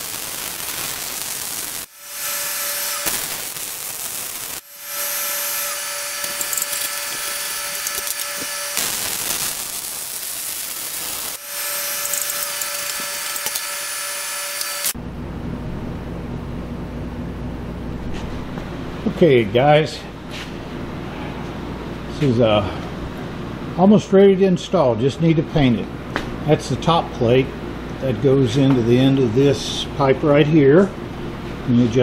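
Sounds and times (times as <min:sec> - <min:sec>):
welding arc hissing: 0:00.0 - 0:15.0
faint steady whine: 0:00.0 - 0:32.0.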